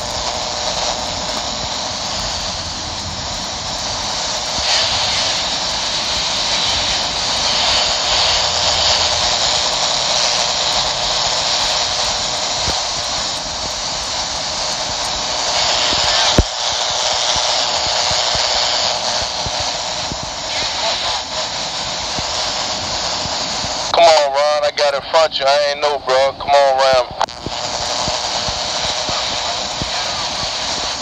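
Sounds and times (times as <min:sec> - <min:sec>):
radio static hiss: 0:00.0 - 0:31.0
radio channel click: 0:15.8 - 0:16.5, 0:24.0 - 0:30.8.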